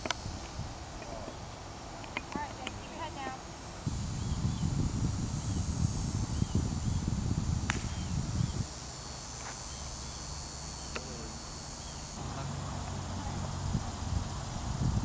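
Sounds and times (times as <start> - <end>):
wind rumble on microphone: 0.0 - 1.6, 3.8 - 8.8, 12.9 - 15.0
insects buzzing: 0.0 - 15.0
sharp click: 7.7 - 8.0.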